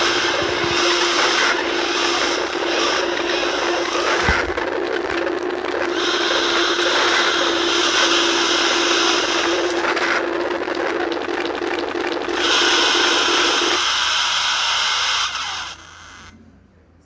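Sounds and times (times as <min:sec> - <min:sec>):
low buzzing tone: 0:05.9 - 0:09.9.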